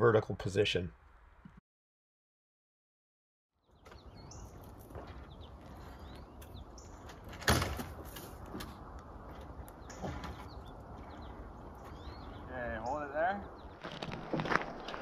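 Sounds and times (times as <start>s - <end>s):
birds chirping: 3.5s - 14.2s.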